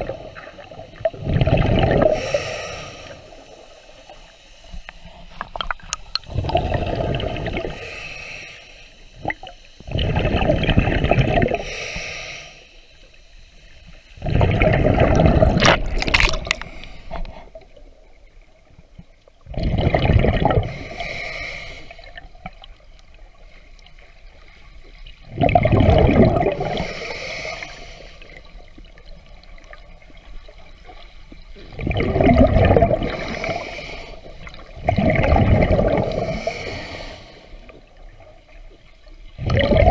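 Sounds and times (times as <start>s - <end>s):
bubbles gurgling: 0.0s - 3.8s, 5.5s - 7.8s, 9.2s - 11.7s, 14.2s - 18.1s, 19.3s - 21.0s, 25.1s - 27.2s, 28.2s - 36.8s, 39.3s - 39.9s
diver breathing underwater: 0.0s - 5.6s, 6.2s - 13.1s, 14.2s - 17.6s, 19.5s - 22.3s, 25.5s - 28.6s, 31.9s - 37.8s.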